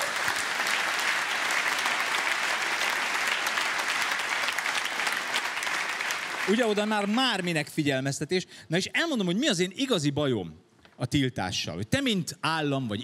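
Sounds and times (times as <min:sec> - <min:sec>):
audience clapping: 0:00.0 - 0:07.9.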